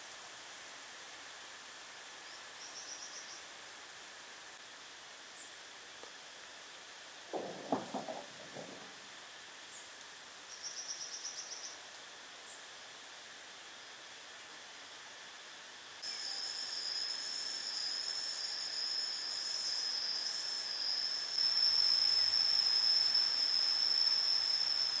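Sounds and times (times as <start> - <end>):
insect hiss: 0.0 - 25.0
low knocking notes: 7.3 - 9.0.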